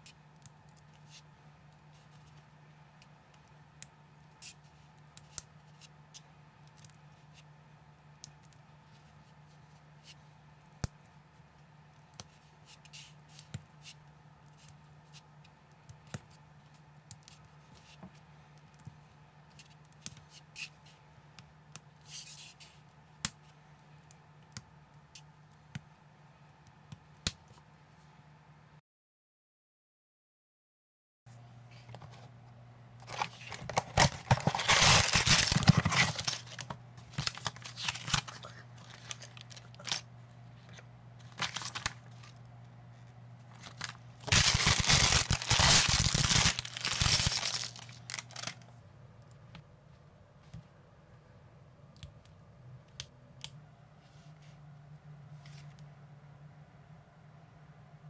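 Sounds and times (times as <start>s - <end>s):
steady low hum: 31.3s - 58.0s.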